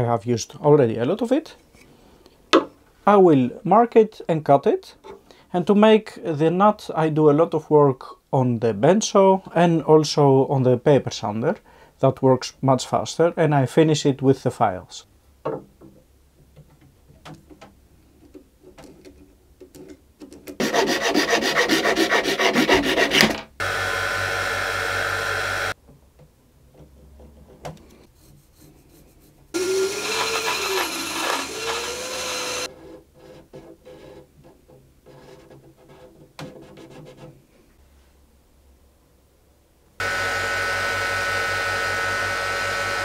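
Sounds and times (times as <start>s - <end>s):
hand filing: 20.6s - 23.4s, 28.0s - 37.3s
band saw cutting wood: 20.6s - 25.8s, 29.6s - 32.7s, 40.0s - 43.0s
electric disc sander running: 23.6s - 25.8s, 29.6s - 32.7s, 40.0s - 43.0s.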